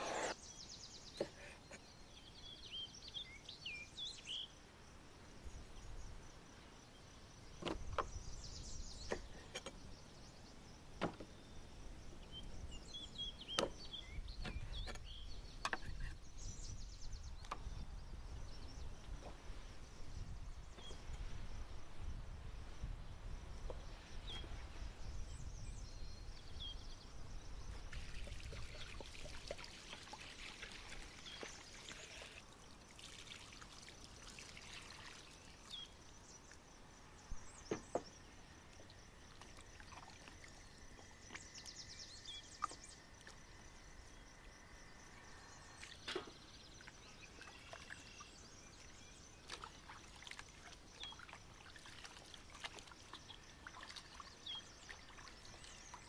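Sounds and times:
liquid pouring and trickling: 28.0s - 35.8s.

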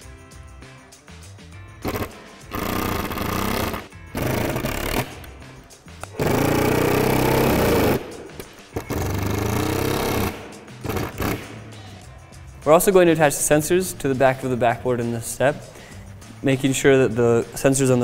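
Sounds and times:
soft background music: 0.0s - 18.0s
impact driver hammering screws: 1.8s - 5.3s, 6.1s - 11.6s.

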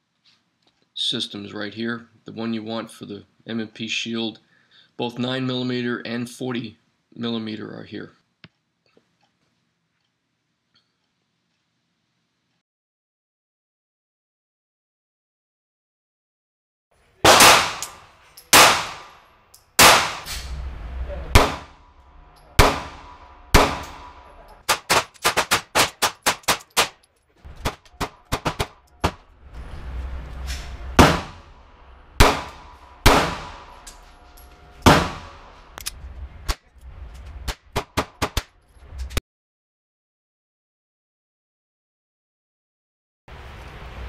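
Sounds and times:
quieter gunshots: 17.2s - 19.2s, 19.8s - 20.6s, 21.3s - 21.8s, 22.5s - 26.9s, 27.5s - 29.3s, 30.9s - 31.6s, 32.2s - 34.1s, 34.7s - 35.8s
pistol shots ringing indoors: 17.2s - 20.5s, 21.3s - 21.8s, 22.4s - 27.0s, 32.2s - 35.7s.

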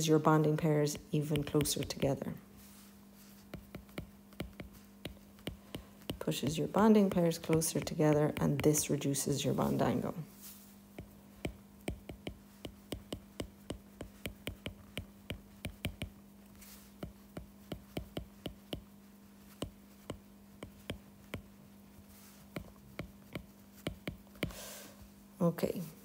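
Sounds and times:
faint steady hum: 0.0s - 26.0s
stylus tapping on glass screen: 3.5s - 8.8s, 11.0s - 16.2s, 17.0s - 18.9s.

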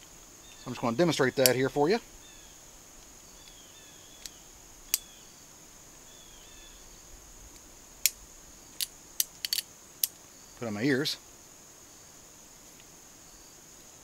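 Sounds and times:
insects chirring: 0.0s - 14.0s
revolver metallic clicks: 4.2s - 5.1s, 8.8s - 10.2s.

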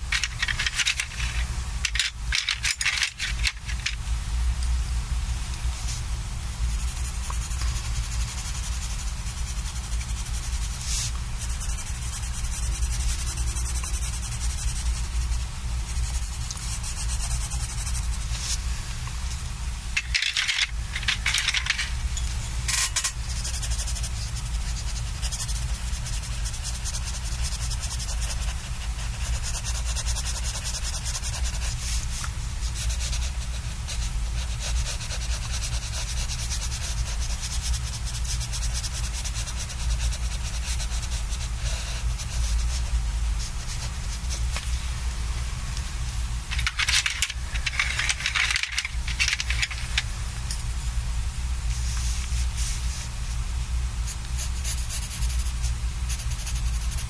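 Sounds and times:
pencil scratching on paper: 6.6s - 18.6s, 22.7s - 32.0s, 32.6s - 44.7s, 54.4s - 57.0s.

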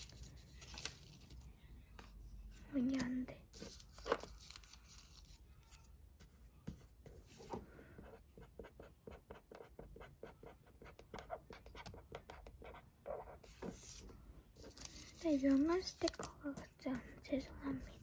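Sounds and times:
marker scratching on sticker: 8.1s - 14.0s.

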